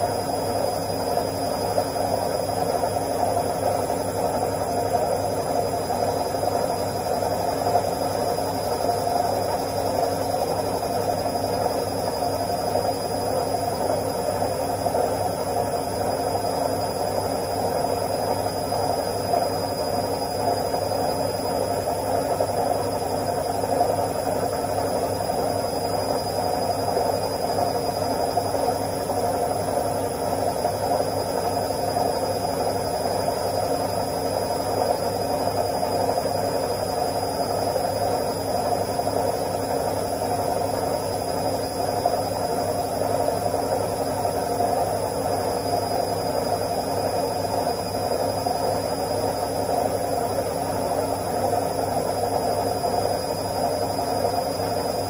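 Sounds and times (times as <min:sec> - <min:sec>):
washing machine spinning: 0:00.0 - 0:55.0.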